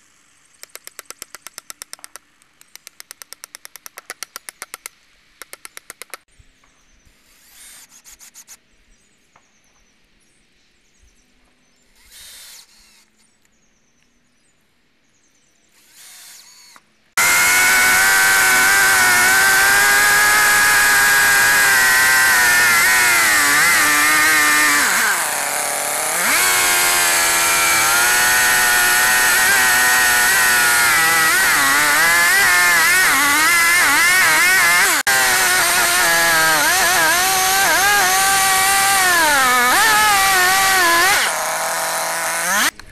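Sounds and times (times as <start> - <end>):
chainsaw cutting wood: 15.8 - 42.9.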